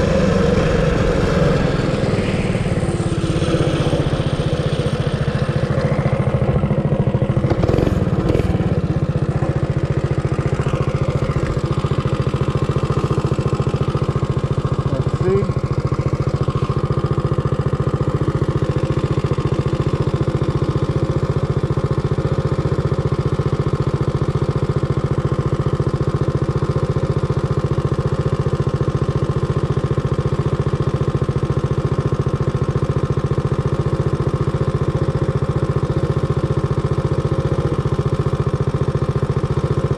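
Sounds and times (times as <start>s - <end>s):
mini bike engine idling: 2.7s - 39.9s.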